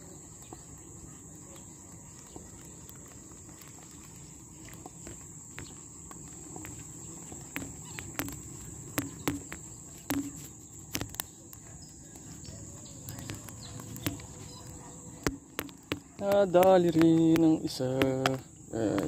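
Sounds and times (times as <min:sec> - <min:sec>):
insects chirring: 0:00.0 - 0:19.0
sharp clicks and knocks: 0:04.7 - 0:19.0.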